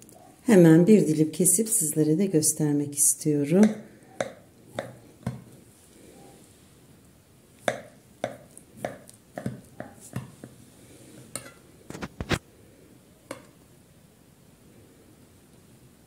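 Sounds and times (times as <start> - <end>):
knife tapping and scraping plate: 3.6 - 5.6, 7.6 - 10.6, 11.2 - 11.6, 13.3 - 13.6.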